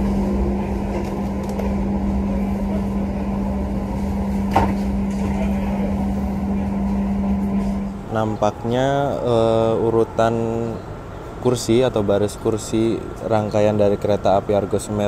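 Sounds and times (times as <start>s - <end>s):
train machinery hum: 0.0s - 15.0s
sharp knock: 4.5s - 4.8s.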